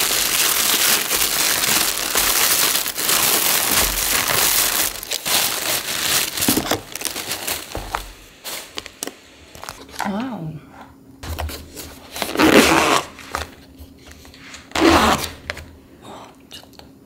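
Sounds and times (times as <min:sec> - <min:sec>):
plastic packaging crinkling: 0:00.0 - 0:10.0, 0:11.7 - 0:13.6.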